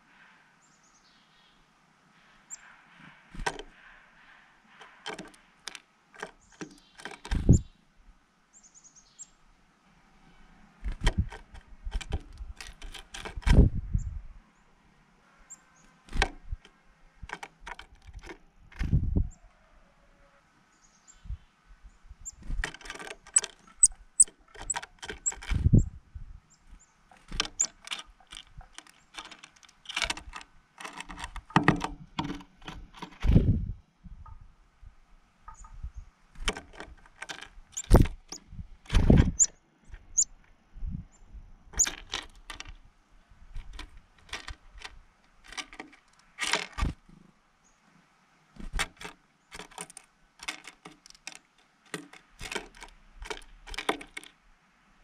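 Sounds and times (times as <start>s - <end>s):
seeds clicking on wooden feeder: 4.8s - 7.6s, 10.9s - 13.6s, 16.1s - 18.9s, 22.5s - 25.8s, 27.1s - 33.3s, 36.4s - 39.5s, 41.8s - 42.8s, 43.5s - 47.0s, 48.6s - 54.4s.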